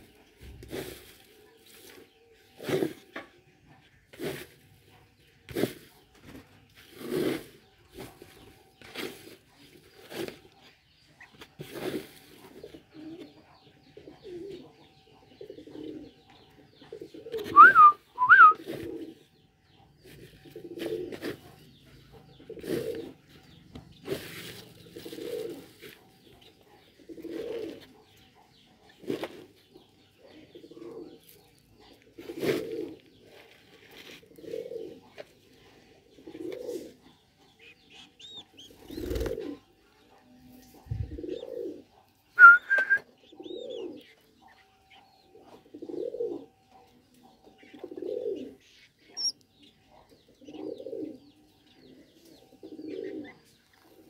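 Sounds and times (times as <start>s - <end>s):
dove cooing: 11.6s - 19.4s, 20.0s - 54.0s.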